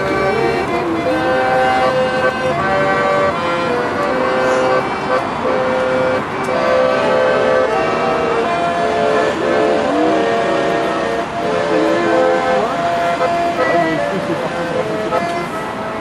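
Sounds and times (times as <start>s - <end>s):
piano accordion playing: 0.0s - 16.0s.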